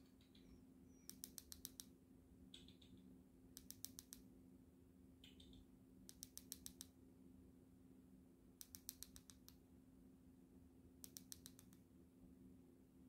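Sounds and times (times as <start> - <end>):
faint rapid clicks: 0.0 - 1.9, 2.5 - 4.3, 5.2 - 7.0, 8.6 - 9.6, 11.0 - 11.8.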